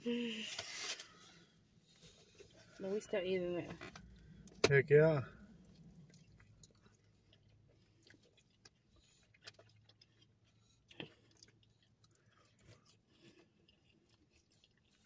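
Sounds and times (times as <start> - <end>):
faint chewing: 5.2 - 15.0.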